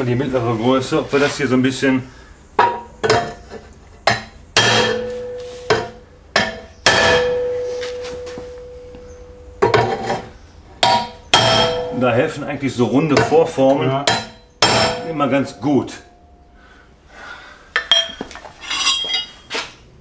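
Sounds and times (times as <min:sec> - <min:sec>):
hammer striking steel pipe: 0:04.1 - 0:08.8, 0:10.8 - 0:12.0, 0:14.0 - 0:15.6.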